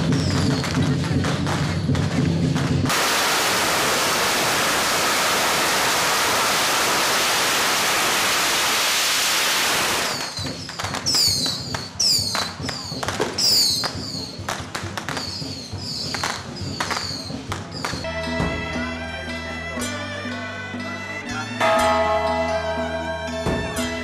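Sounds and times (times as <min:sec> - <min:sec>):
firecrackers going off: 0:00.0 - 0:18.1.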